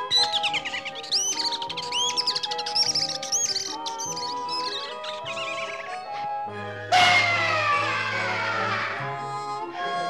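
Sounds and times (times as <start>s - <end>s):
orchestral background music: 0.0s - 10.0s
cartoon bird chirping and whistling: 0.1s - 6.0s.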